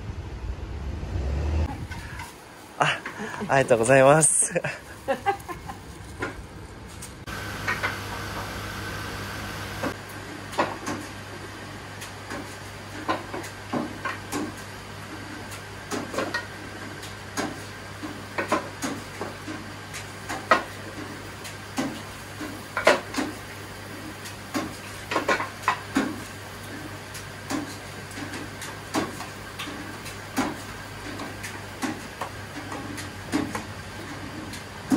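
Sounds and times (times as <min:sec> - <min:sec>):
steady low hum: 0:04.6 - 0:10.0.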